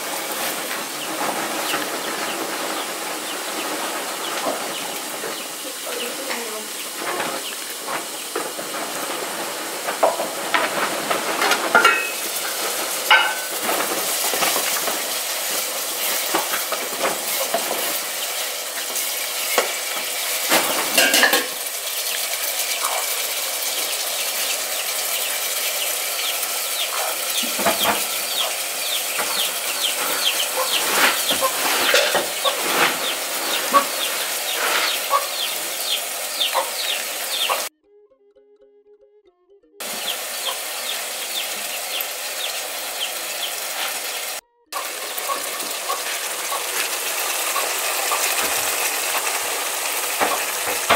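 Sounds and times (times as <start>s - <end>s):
steaming pot hissing: 0.0s - 37.7s, 39.8s - 50.9s
short chirping calls: 25.2s - 37.7s.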